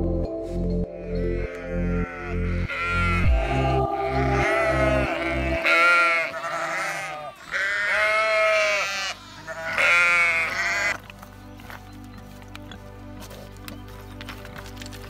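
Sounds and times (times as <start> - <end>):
sheep bleating: 1.0 - 11.0.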